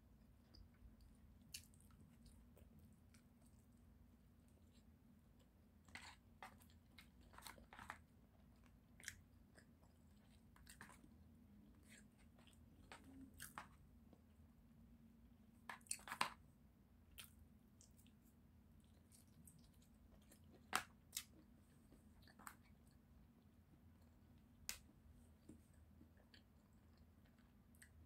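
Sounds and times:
chewing with wet mouth clicks: 0:00.4 - 0:03.7, 0:08.5 - 0:13.6, 0:17.1 - 0:23.0, 0:24.7 - 0:28.0.

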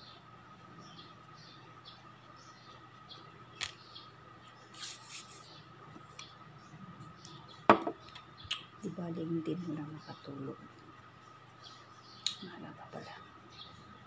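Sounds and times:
faint high hum: 0:00.0 - 0:14.0
loud knock: 0:07.7 - 0:08.0.

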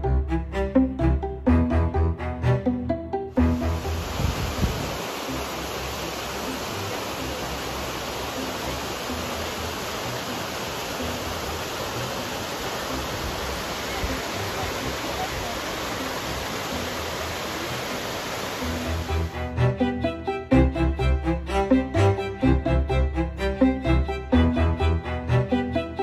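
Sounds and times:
waterfall rushing over rock: 0:03.6 - 0:19.5.

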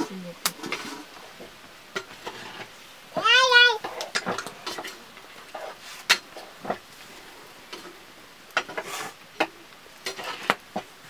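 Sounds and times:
metal ladle scraping metal pot: 0:01.9 - 0:02.7, 0:08.6 - 0:09.2, 0:10.0 - 0:10.6.

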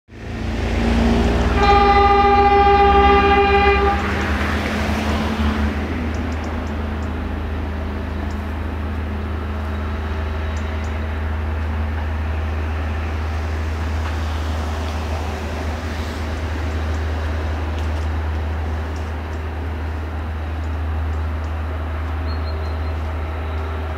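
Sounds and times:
low engine rumble: 0:00.1 - 0:23.9
locomotive horn: 0:01.1 - 0:05.1.

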